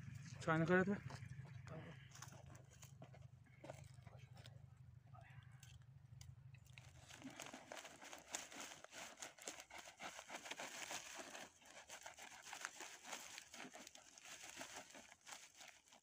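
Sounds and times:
plastic bag crinkling: 6.7s - 16.0s.

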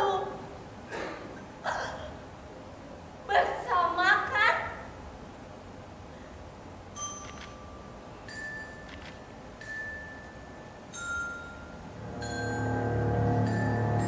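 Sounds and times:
bell-like chime notes: 11.0s - 14.0s
sustained music with low notes: 11.8s - 14.0s.

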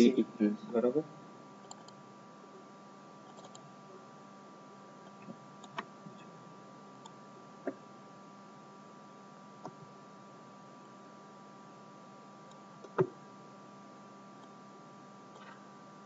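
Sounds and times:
low electrical hum: 0.0s - 16.0s
computer mouse clicks: 1.6s - 2.0s, 3.3s - 3.7s, 5.1s - 6.3s.

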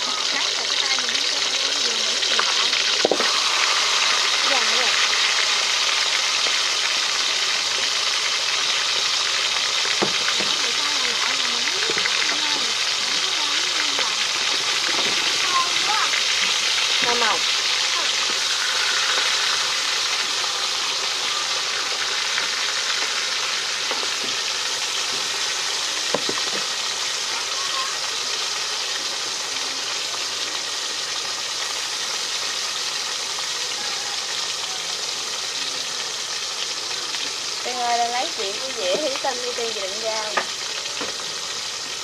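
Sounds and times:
fish sizzling in hot oil: 0.0s - 42.0s
knock: 26.1s - 26.6s.

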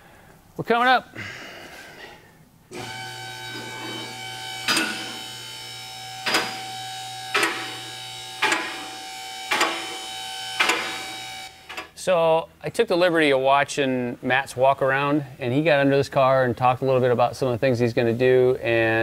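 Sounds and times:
hydraulic car lift motor running: 2.7s - 12.0s
safety locks clicking: 6.2s - 6.7s, 7.3s - 7.8s, 8.4s - 12.0s.

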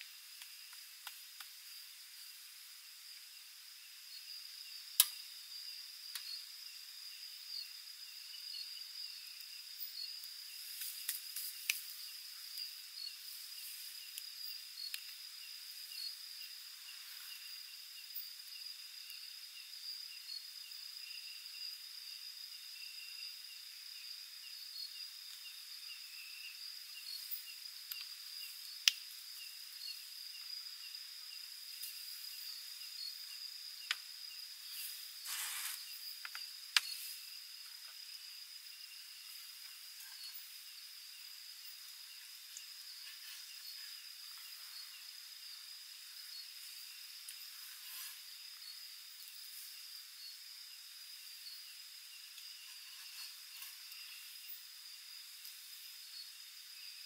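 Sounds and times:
crickets trilling: 0.0s - 57.0s
handling rustle: 35.2s - 35.8s.

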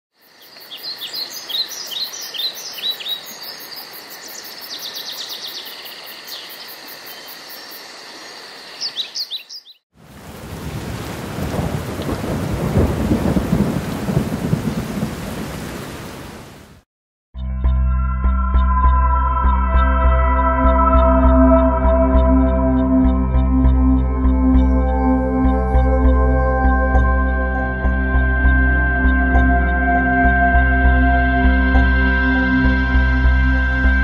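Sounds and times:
birds chirping: 0.2s - 9.8s
heavy rain: 10.0s - 16.8s
rumbling thunder: 10.2s - 15.9s.

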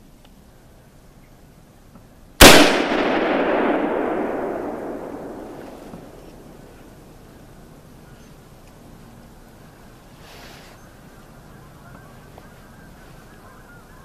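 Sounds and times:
rifle shot with echo: 2.4s - 7.1s.

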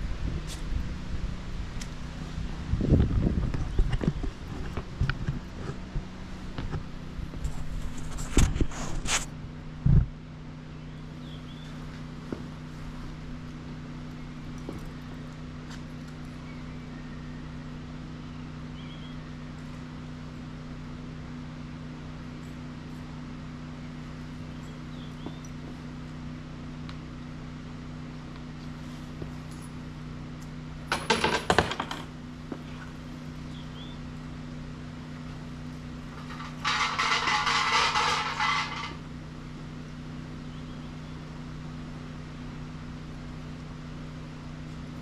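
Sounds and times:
steady low hum: 0.0s - 45.0s
faint bird chirps: 18.3s - 19.4s, 33.5s - 34.1s, 40.4s - 41.3s
coins clattering into wooden box: 36.2s - 39.0s.

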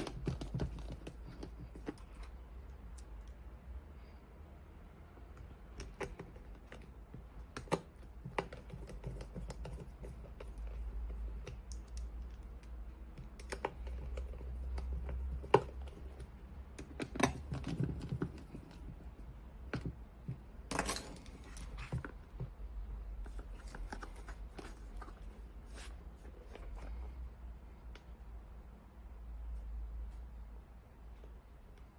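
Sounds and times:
hands handling plastic case: 0.0s - 3.1s, 5.2s - 27.2s.

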